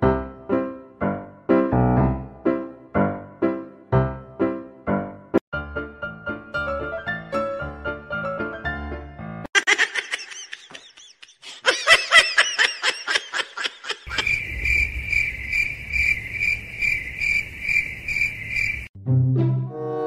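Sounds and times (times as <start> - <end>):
high-pitched giggling: 9.6 - 14.4
crickets chirping: 14.0 - 18.9.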